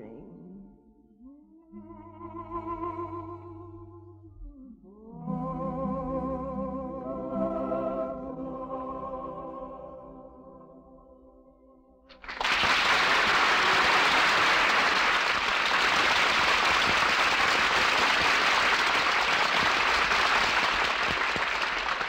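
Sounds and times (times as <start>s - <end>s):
audience applauding: 12.1s - 22.0s.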